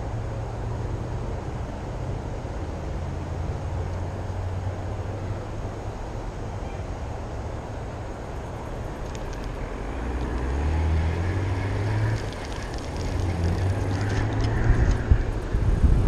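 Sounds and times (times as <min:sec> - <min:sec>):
low rumble: 0:08.1 - 0:16.0.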